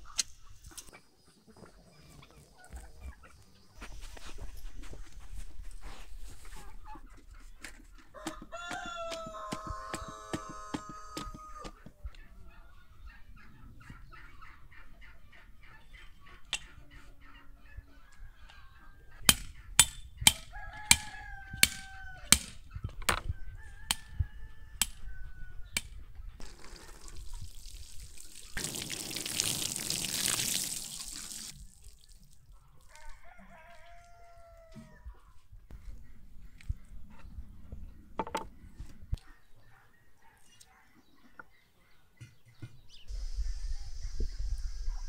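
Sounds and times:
chickens clucking: 0.0 - 27.4, 32.5 - 45.0
water pouring onto soil: 26.4 - 33.2.

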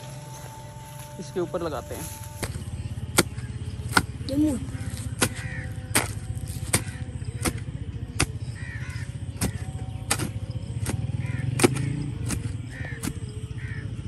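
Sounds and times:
hoe chopping into soil: 2.3 - 13.3
crows cawing: 3.2 - 14.0.

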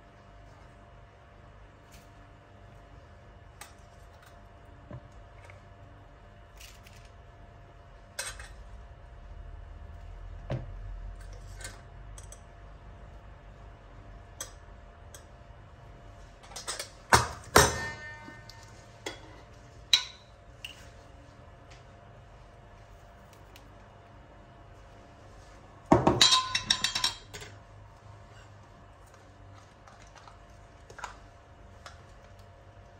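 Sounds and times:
metal spoon clinking on steel bowls: 20.0 - 20.3, 26.2 - 27.6.

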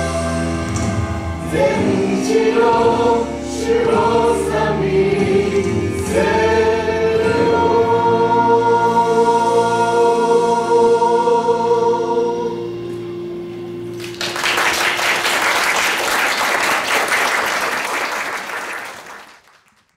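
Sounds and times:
a cappella group holding a chord: 0.0 - 13.8
audience applause: 13.9 - 19.9.

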